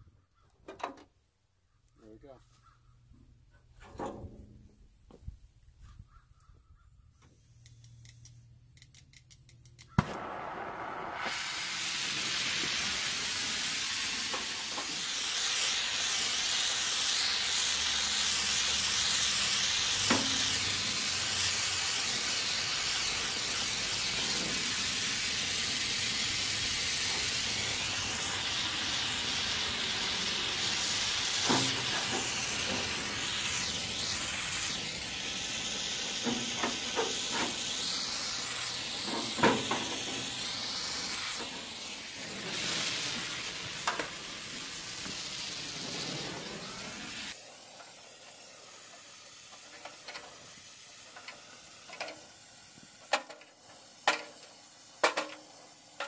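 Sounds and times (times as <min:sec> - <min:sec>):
sharp metallic clicks: 0:07.6 - 0:10.3
torch hissing: 0:09.9 - 0:56.0.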